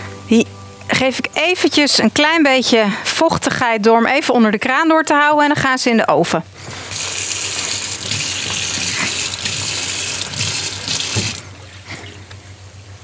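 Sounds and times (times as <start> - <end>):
tap water running into steel sink: 6.9 - 11.5.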